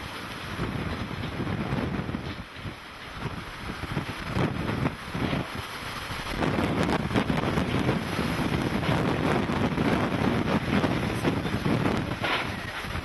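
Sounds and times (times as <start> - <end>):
gusty wind buffeting microphone: 0.0 - 13.0.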